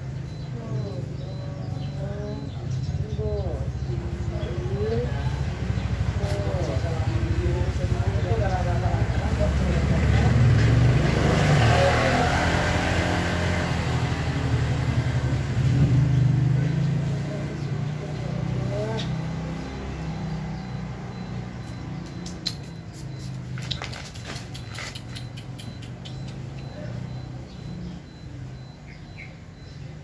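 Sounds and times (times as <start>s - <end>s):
vehicle engine running: 0.0s - 30.0s
light clicks and ticks: 21.7s - 26.8s.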